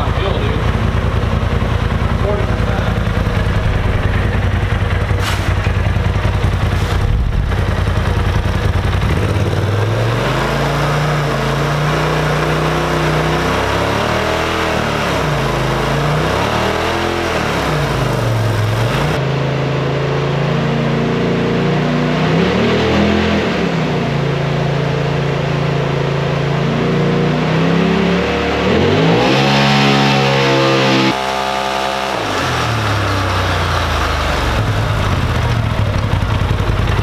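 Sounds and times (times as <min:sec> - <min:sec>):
engine revving: 0:00.0 - 0:37.0.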